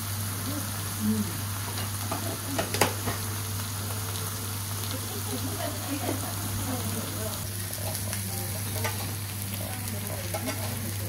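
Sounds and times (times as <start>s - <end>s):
food sizzling on griddle: 0.0s - 11.0s.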